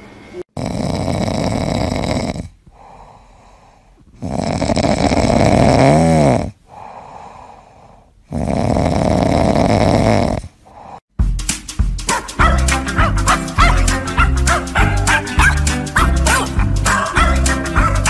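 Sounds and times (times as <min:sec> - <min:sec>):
cat snoring: 0:00.5 - 0:11.0.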